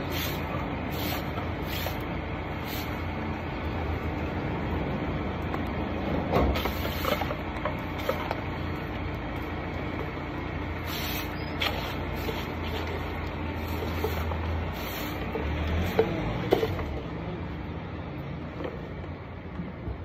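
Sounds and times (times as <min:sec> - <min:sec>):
broom scraping pavement: 0:00.0 - 0:03.2, 0:06.4 - 0:08.4, 0:10.8 - 0:17.0
street traffic rumble: 0:00.0 - 0:20.0.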